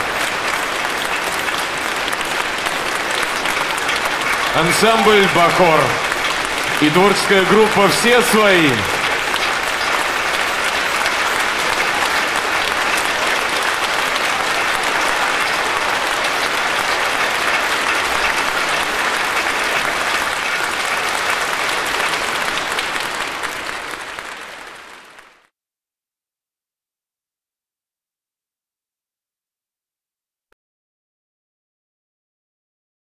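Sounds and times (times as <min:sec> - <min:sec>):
audience applauding: 0:00.0 - 0:25.5.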